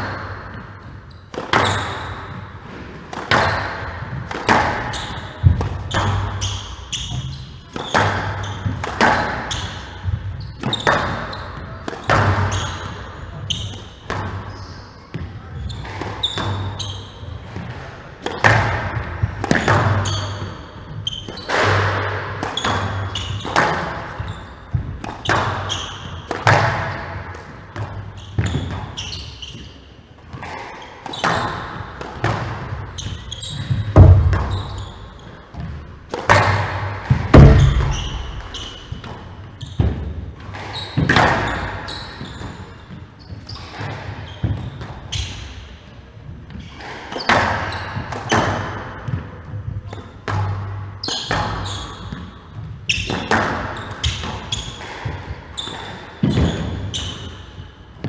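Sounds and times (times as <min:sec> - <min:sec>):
shoes squeaking on wooden floor: 0:00.0 - 0:18.0, 0:18.9 - 0:48.5, 0:50.9 - 0:58.0
squash ball hitting rackets and walls: 0:00.0 - 0:58.0
heavy thuds: 0:33.7 - 0:35.0, 0:35.6 - 0:40.1.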